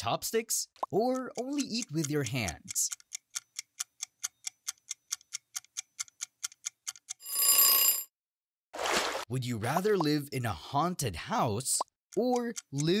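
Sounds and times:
clock ticking fast: 0:00.8 - 0:07.2, 0:12.1 - 0:13.0.

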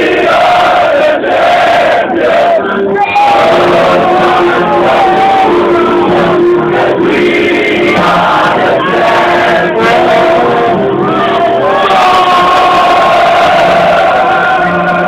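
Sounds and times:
crowd of fans singing: 0:00.0 - 0:15.0
music: 0:00.0 - 0:15.0.

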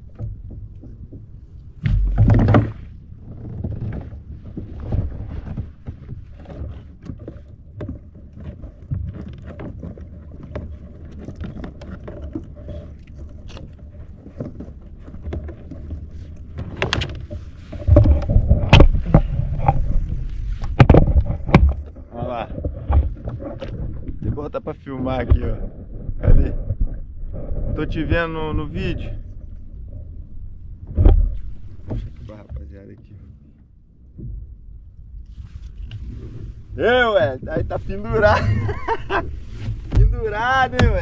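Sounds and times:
knocks and rubbing on kayak hull: 0:00.0 - 0:41.0.

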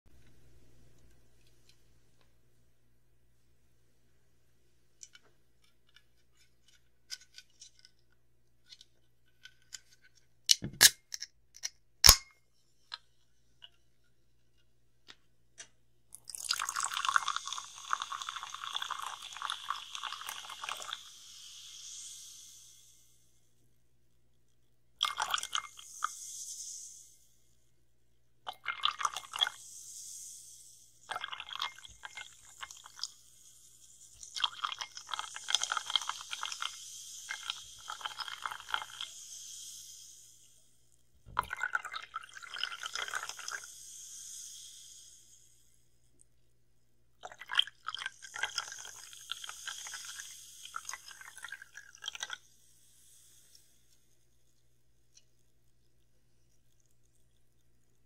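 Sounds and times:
carbonated water fizzing: 0:16.1 - 0:23.4, 0:25.0 - 0:27.5, 0:28.5 - 0:45.8, 0:47.2 - 0:58.0.

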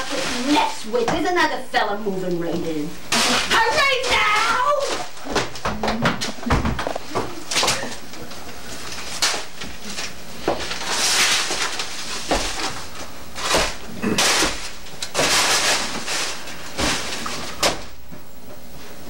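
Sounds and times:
paper tape rustling and crumpling: 0:06.2 - 0:17.8.

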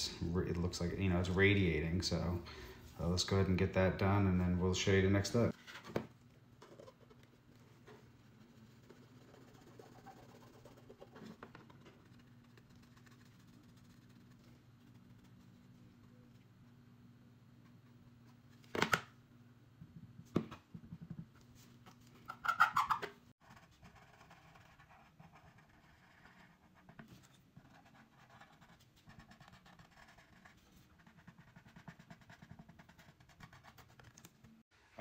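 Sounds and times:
marker scratching on plastic: 0:08.4 - 0:15.6, 0:22.4 - 0:34.2.

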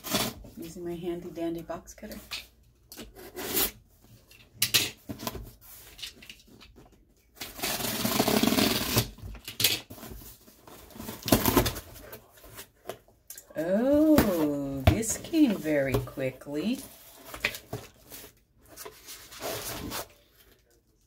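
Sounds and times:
box cutter slitting packing tape: 0:07.4 - 0:09.2.

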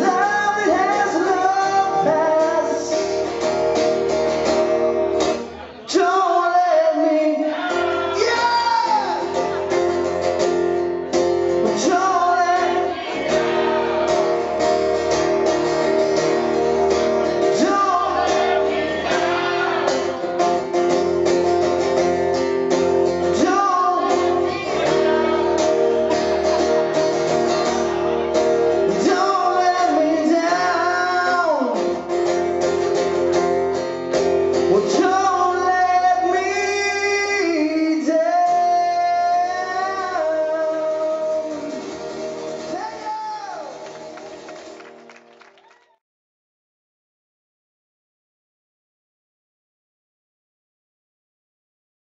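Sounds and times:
man singing: 0:00.0 - 0:03.4, 0:05.5 - 0:09.8, 0:11.5 - 0:14.6, 0:17.0 - 0:20.6, 0:23.2 - 0:32.1, 0:34.5 - 0:43.8
acoustic guitar strumming: 0:00.0 - 0:45.0.

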